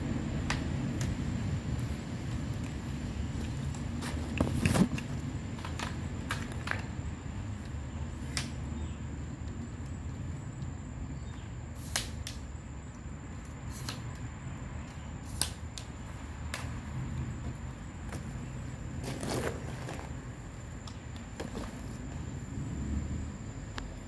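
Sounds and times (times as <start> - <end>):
low steady rumble: 21.8 - 24.0.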